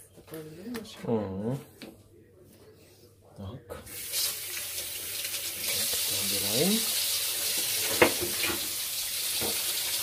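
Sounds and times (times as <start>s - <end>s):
kitchen tap running into sink: 3.9s - 10.0s.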